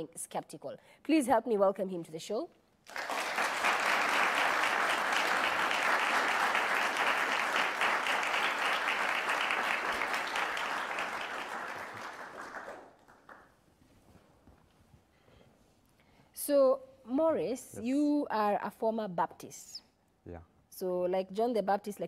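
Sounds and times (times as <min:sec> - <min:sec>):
audience applauding: 0:02.8 - 0:13.6.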